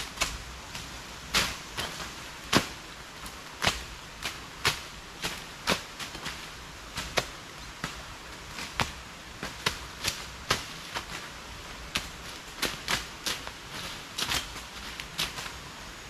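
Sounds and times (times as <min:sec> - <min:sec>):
machetes slashing undergrowth: 0:00.0 - 0:15.7.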